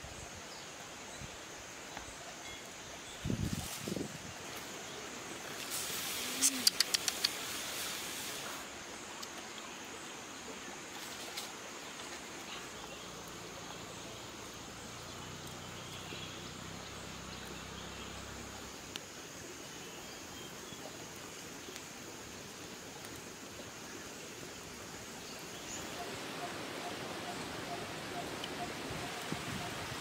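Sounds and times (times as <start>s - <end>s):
steady hiss: 0.0s - 30.0s
faint clicks: 6.4s - 7.5s.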